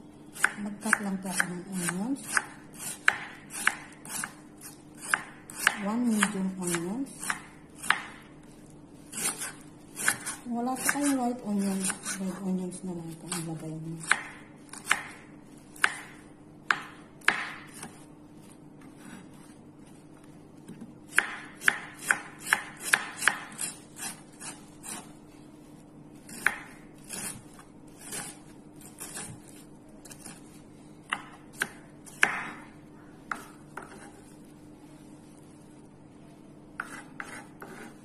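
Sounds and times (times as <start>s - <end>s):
knife chopping on wooden board: 0.4s - 8.2s, 9.1s - 12.1s, 14.0s - 18.0s, 20.7s - 25.1s, 26.3s - 30.4s, 31.1s - 32.6s, 33.3s - 34.2s, 36.8s - 38.0s.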